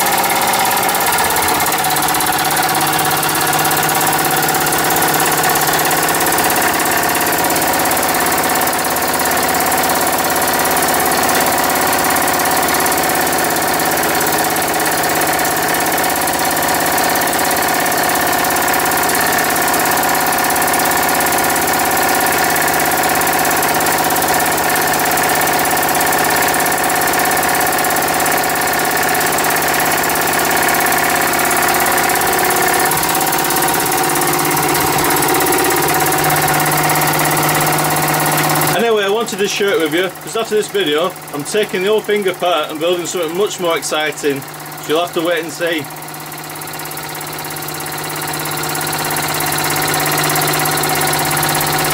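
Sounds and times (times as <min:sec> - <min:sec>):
model steam engine running: 0:00.0 - 0:51.9.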